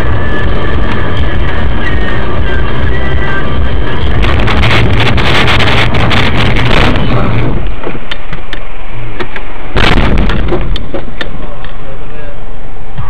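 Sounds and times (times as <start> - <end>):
distorted road and engine noise: 0.0 - 13.0.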